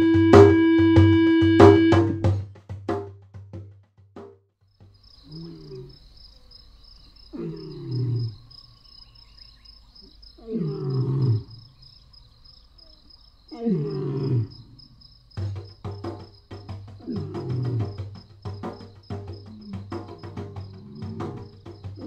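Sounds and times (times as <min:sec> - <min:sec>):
high-pitched insect chirring: 0:05.0 - 0:13.6, 0:14.5 - 0:22.0
lion roaring: 0:05.3 - 0:06.0, 0:07.3 - 0:08.5, 0:10.4 - 0:11.6, 0:13.5 - 0:15.0, 0:17.0 - 0:18.1, 0:19.4 - 0:22.0.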